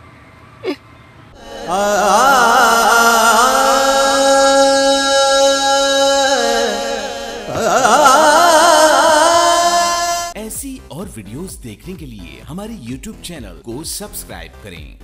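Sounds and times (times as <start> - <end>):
slow solo melody with vibrato: 1.4 - 9.3.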